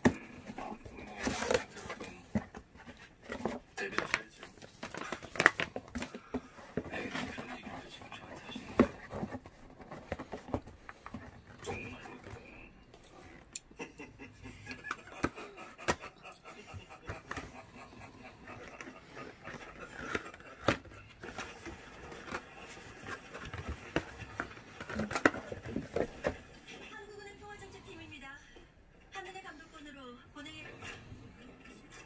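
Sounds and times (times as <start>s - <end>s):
cardboard box handling: 0.0s - 13.3s, 18.4s - 26.5s.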